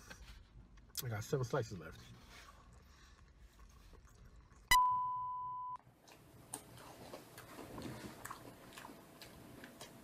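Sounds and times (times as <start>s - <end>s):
electronic beep: 4.7s - 5.8s.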